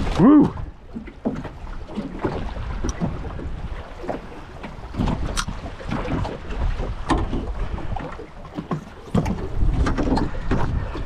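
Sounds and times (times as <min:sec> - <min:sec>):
wind buffeting microphone: 0:00.0 - 0:11.0
fishing rods knocking on hull: 0:04.1 - 0:11.0.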